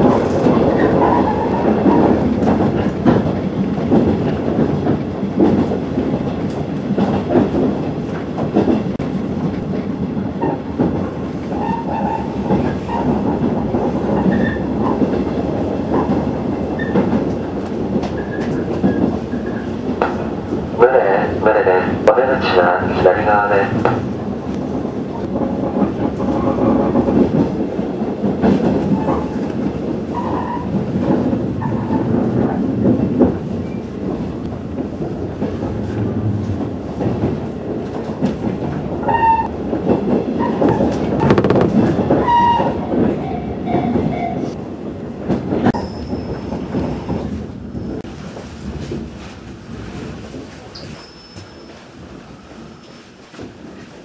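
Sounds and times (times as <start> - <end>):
train wheels rumbling on rail: 0.0 - 54.0
rail clatter and knocks: 39.4 - 44.1
high wheel squeals: 50.4 - 52.1.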